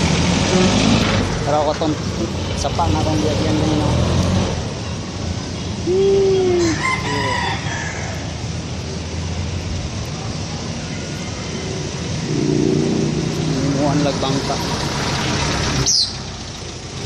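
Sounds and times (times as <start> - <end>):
low hum of road traffic: 0.0 - 17.0
rooster crowing: 6.6 - 8.3.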